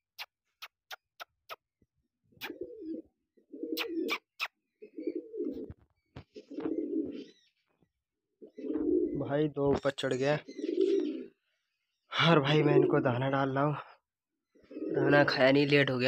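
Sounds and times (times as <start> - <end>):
pigeons cooing: 2.4 - 7.7, 8.4 - 9.8, 10.4 - 11.6, 12.5 - 13.2, 14.5 - 15.7.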